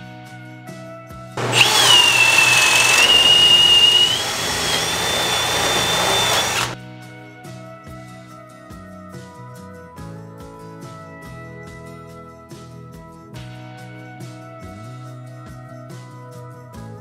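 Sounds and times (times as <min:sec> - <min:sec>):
cordless drill driving a screw: 0:01.4 - 0:06.8.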